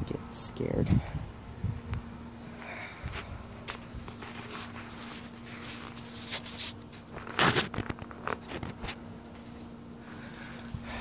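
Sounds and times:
steady low hum: 0.0s - 11.0s
rustling and scuffing: 3.0s - 10.8s.

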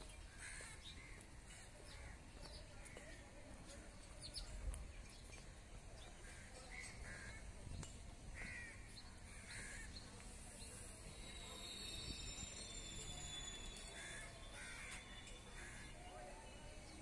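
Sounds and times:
wind: 0.0s - 17.0s
crows cawing: 0.4s - 1.2s, 8.4s - 9.9s, 14.0s - 15.9s
thin high steady tones: 10.2s - 16.8s.

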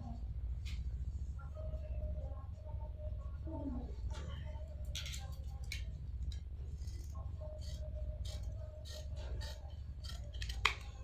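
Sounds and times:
scissors snipping cloth: 5.7s - 11.0s.

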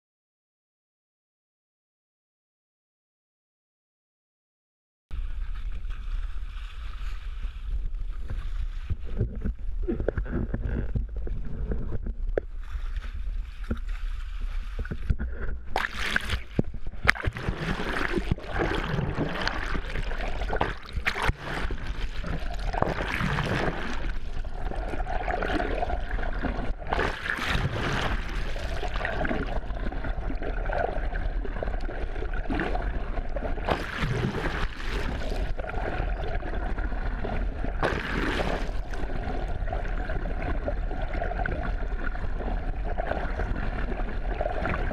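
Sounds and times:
wind noise: 5.1s - 31.7s
low boat rumble: 5.1s - 44.9s
water rushing and gurgling: 5.2s - 44.9s.

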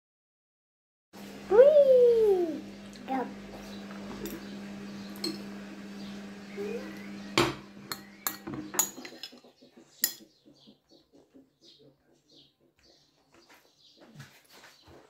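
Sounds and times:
steady low hum: 1.2s - 9.0s
metal spoon clinking on dish: 5.2s - 5.4s, 7.9s - 9.4s, 10.0s - 10.2s.

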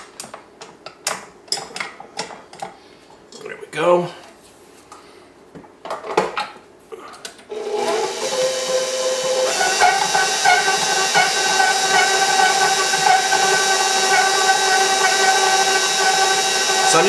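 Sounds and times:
stand mixer motor whining: 7.5s - 17.0s.

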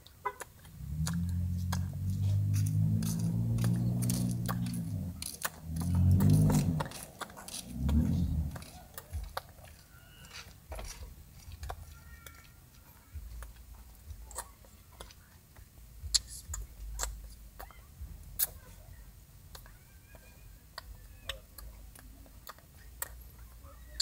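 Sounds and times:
low voice hum: 0.8s - 9.3s.

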